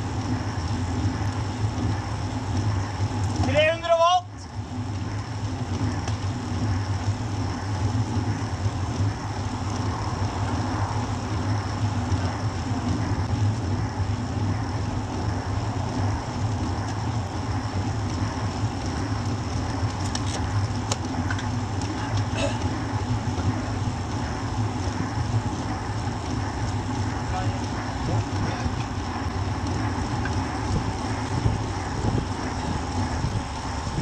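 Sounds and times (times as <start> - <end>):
tyres rolling on asphalt: 0.0 - 34.0
wind rumble on microphone: 0.0 - 34.0.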